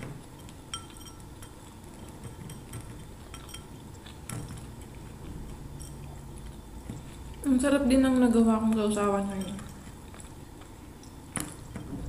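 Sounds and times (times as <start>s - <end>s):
utensils clinking against a dish: 0.0s - 7.6s, 8.2s - 10.3s.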